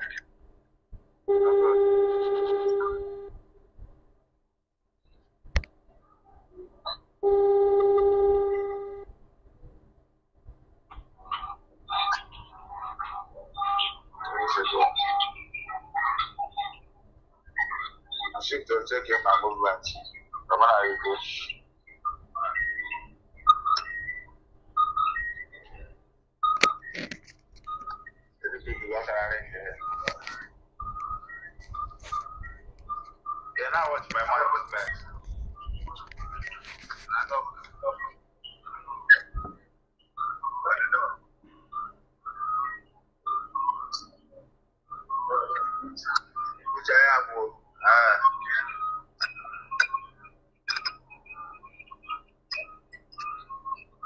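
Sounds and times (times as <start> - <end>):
phone ringback tone: 1.3 - 3.4, 7.2 - 9.1.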